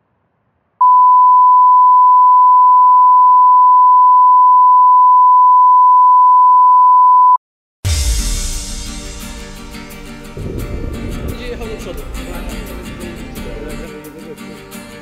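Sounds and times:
sine test tone: 0.8s - 7.4s.

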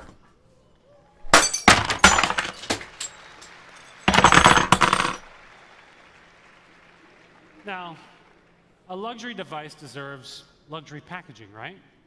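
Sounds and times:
knocks and clinks with ringing: 1.4s - 5.2s.

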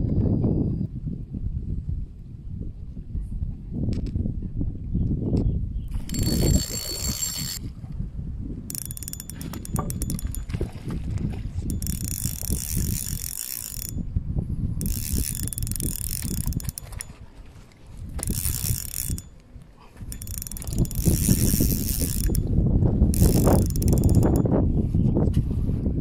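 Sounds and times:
fishing reel gears whirring: 5.9s - 7.6s, 8.7s - 10.7s, 11.6s - 14.1s, 14.8s - 17.2s, 18.2s - 19.4s, 20.0s - 24.5s.

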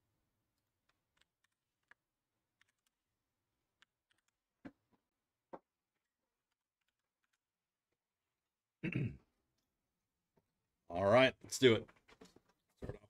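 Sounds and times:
keyboard and mouse clicks: 0.8s - 3.0s, 3.7s - 4.7s, 6.0s - 7.5s.

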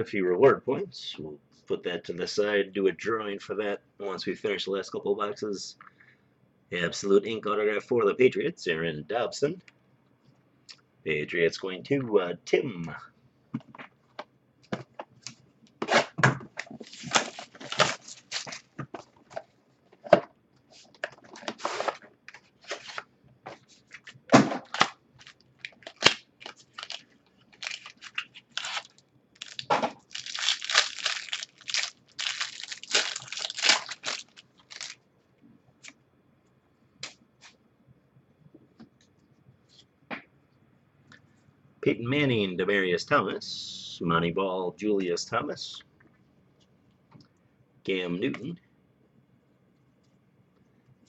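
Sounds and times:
foil wrapper tearing and crinkling: 16.8s - 18.7s, 24.6s - 35.0s.

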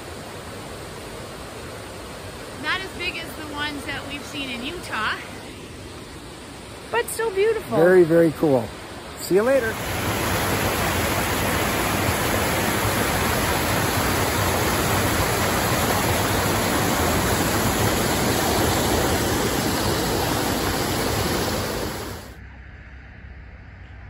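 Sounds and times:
waterfall rushing over rocks: 0.0s - 22.4s.

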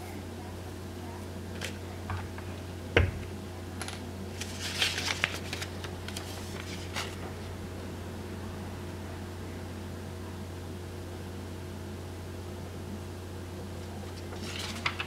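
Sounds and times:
steady low hum: 0.0s - 15.0s
crinkling rustle: 4.3s - 7.2s, 14.1s - 15.0s.

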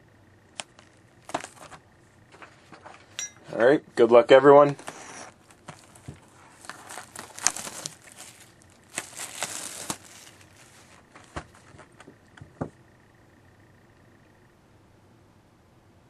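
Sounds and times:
wrapping crinkling and tearing: 4.6s - 12.1s.

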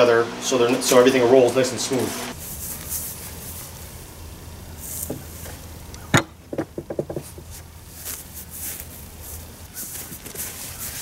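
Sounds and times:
wooden beam knocking: 6.1s - 7.4s.

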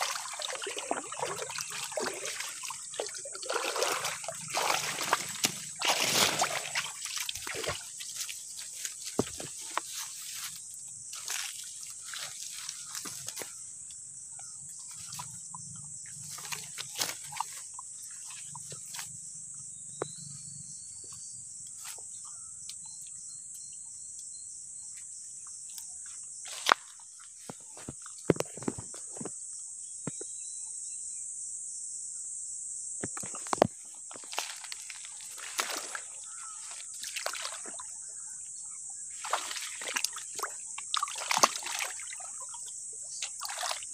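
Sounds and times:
fish thrashing in grass: 0.0s - 13.5s, 34.2s - 37.8s, 39.2s - 42.2s
insects droning: 0.0s - 43.9s.

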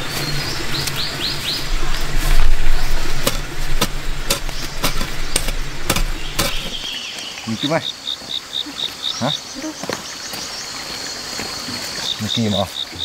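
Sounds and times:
low hum: 0.0s - 6.9s.

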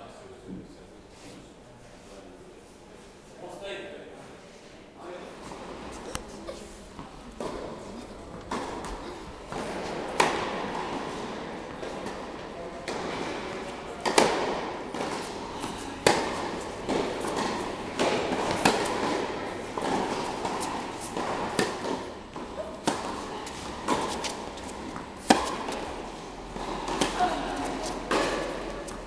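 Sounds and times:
tennis balls struck by racquets: 6.9s - 29.0s.

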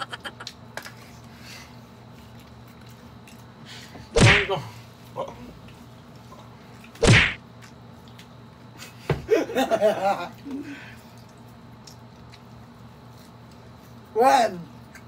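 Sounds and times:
loud heavy thuds: 4.2s - 4.6s, 7.0s - 7.4s.

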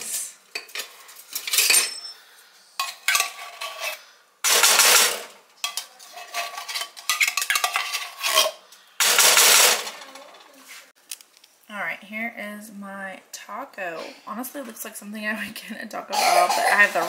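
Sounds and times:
utensils scraping and clinking cookware: 0.0s - 10.8s, 16.2s - 17.0s.

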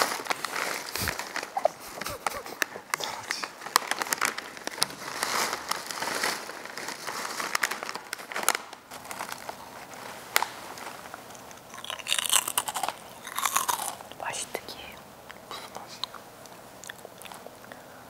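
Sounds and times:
chips being crunched and chewed: 0.0s - 14.4s
plastic snack bag crinkling: 0.0s - 15.0s.

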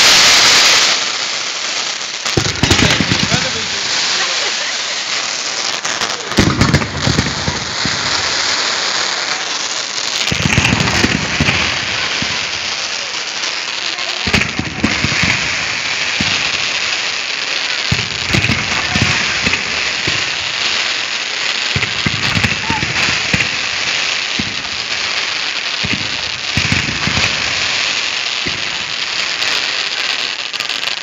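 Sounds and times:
fireworks fizzing and crackling: 0.0s - 31.0s.

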